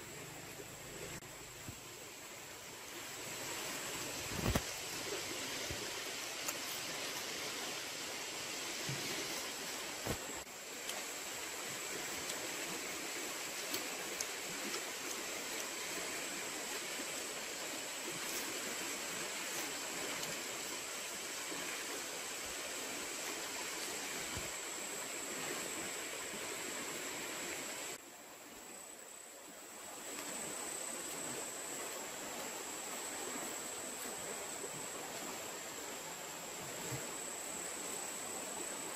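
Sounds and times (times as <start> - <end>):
river water flowing: 0.0 - 38.9.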